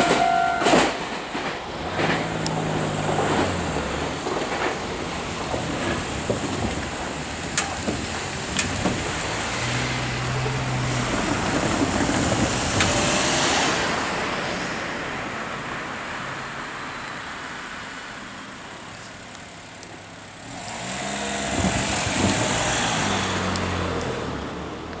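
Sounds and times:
cars passing over level crossing: 0.0 - 25.0.

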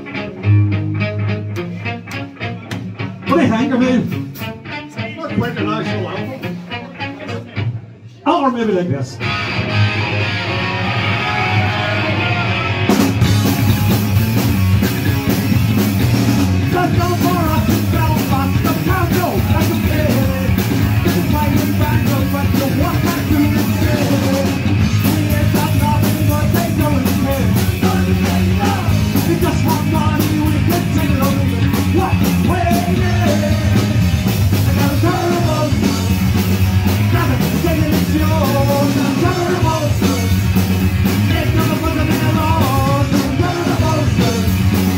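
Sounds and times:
electric guitar: 0.0 - 8.1, 9.0 - 44.9
punk rock band playing: 0.0 - 8.1, 9.1 - 44.9
person singing: 16.6 - 36.4, 37.0 - 40.4, 41.1 - 44.8.

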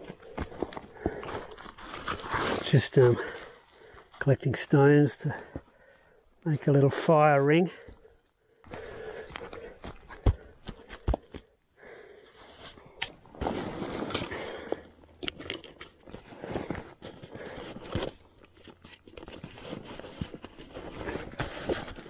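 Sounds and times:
small clicks and knocks of gear: 15.1 - 16.2.

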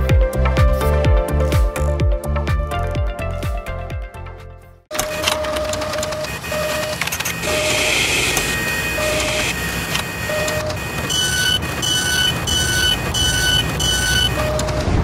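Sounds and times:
mechanical whirring and clicking: 4.9 - 15.0.

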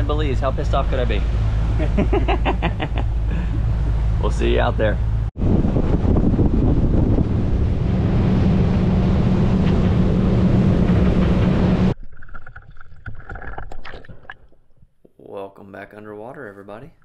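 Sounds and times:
boat motor running: 0.0 - 12.0
wind and water noise: 0.0 - 14.8
underwater clicks and crackles: 12.0 - 14.9.

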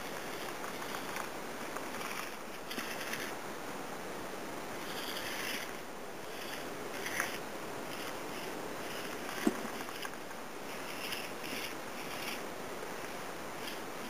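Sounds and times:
small electric motor whirring: 0.0 - 3.3, 4.8 - 12.4
steady hiss: 0.0 - 14.0.

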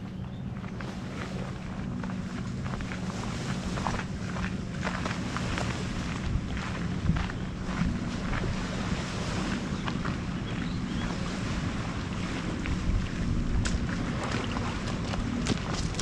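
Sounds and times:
wind buffeting microphone: 0.0 - 16.0
footsteps on dirt trail: 1.8 - 9.0, 13.6 - 16.0.

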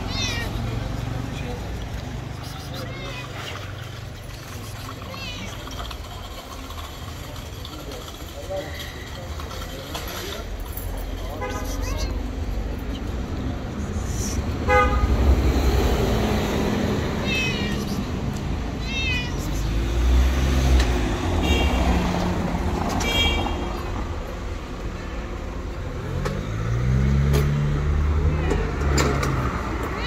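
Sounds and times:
cat meowing: 0.0 - 0.7, 2.7 - 3.6, 11.8 - 12.2, 17.2 - 18.1, 18.7 - 19.8
low rumble of street traffic: 0.0 - 30.0
vehicle engine pulling away: 19.6 - 23.0, 25.8 - 30.0.

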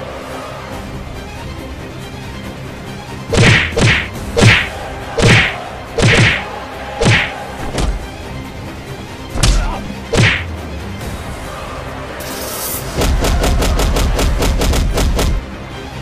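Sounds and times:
background music: 0.0 - 16.0
punch sound effects: 3.3 - 8.0, 9.4 - 10.5.

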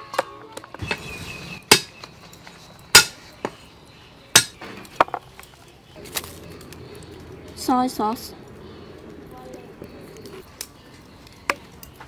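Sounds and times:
cleaver chopping on wooden block: 3.0 - 3.2, 4.4 - 4.6.

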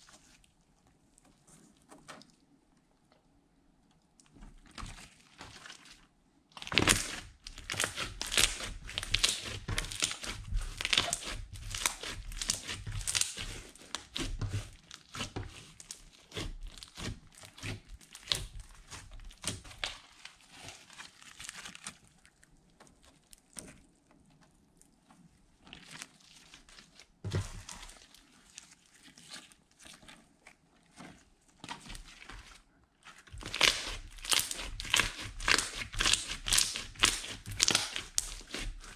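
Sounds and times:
slime squishing and popping: 6.6 - 22.2, 33.3 - 38.9.

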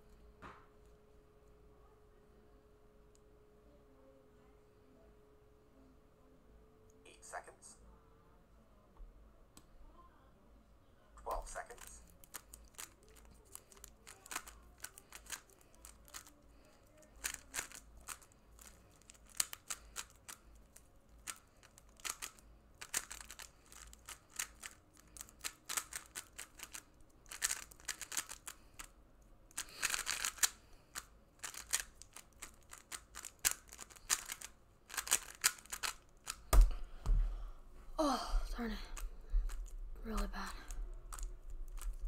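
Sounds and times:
puzzle cube plastic clicks: 11.3 - 28.9, 29.5 - 36.7, 39.0 - 42.0.

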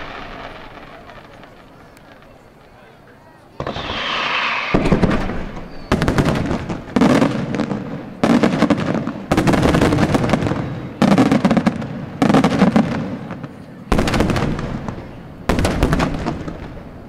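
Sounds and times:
firework hiss: 0.0 - 2.1, 3.5 - 7.8
firework shell bursts: 3.6 - 6.6.

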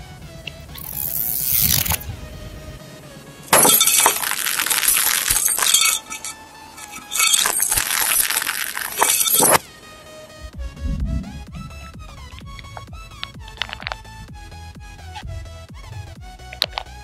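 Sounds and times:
glass crunching under a tyre: 0.8 - 2.0, 3.5 - 9.6.

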